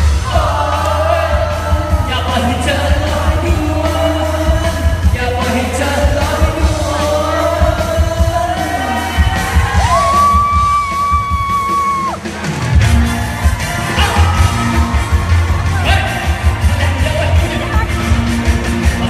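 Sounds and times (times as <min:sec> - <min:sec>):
crowd yelling: 0:00.0 - 0:04.6, 0:06.6 - 0:19.0
person singing: 0:00.0 - 0:10.6
heavy bass beat: 0:00.0 - 0:19.0
live pop music: 0:00.0 - 0:19.0.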